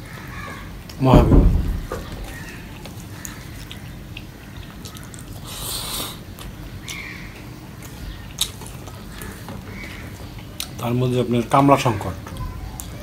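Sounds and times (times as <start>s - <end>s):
chewing: 2.7s - 10.8s.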